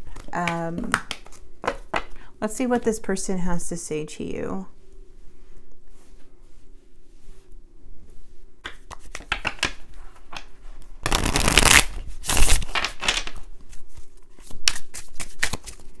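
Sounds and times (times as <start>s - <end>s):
cards being shuffled by hand: 0.0s - 2.1s, 8.6s - 16.0s.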